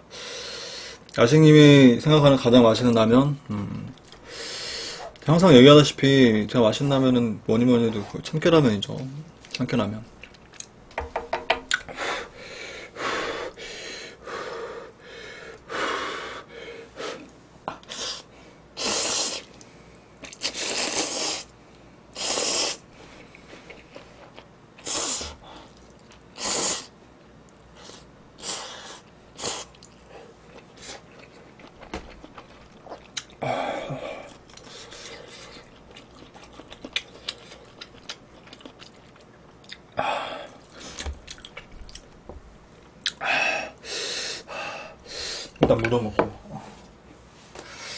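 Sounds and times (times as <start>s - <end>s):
person slurping noodles: 20.3s - 21.5s, 22.2s - 22.8s
chewing: 23.0s - 24.5s, 29.7s - 33.4s, 34.3s - 39.9s, 40.5s - 42.2s.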